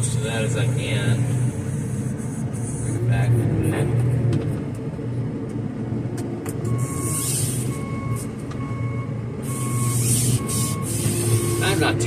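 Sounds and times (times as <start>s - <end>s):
diesel engine running: 0.0s - 12.0s
reversing alarm beeping: 6.6s - 12.0s.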